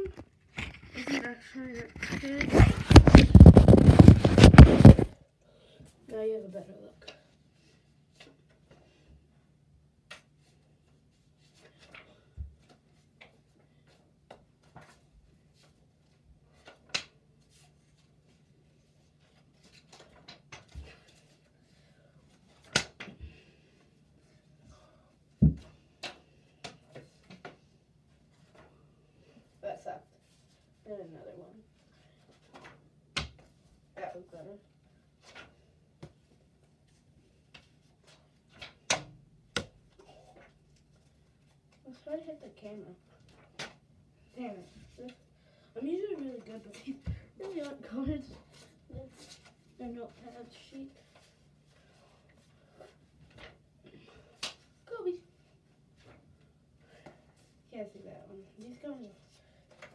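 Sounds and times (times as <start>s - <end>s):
paper cards tapping and swishing: 1.7s - 5.2s.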